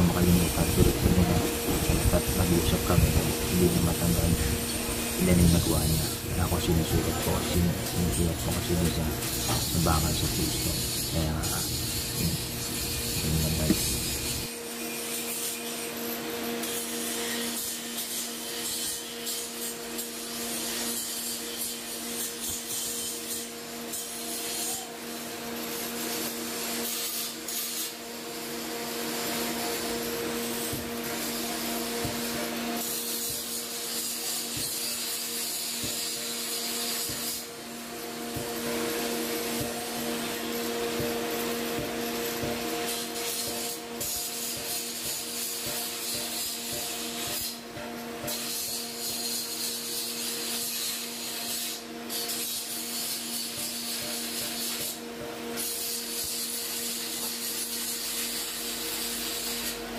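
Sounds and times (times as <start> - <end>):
grinding machine hum: 0.0 - 14.5
grinding wheel rasping on steel: 0.0 - 14.5.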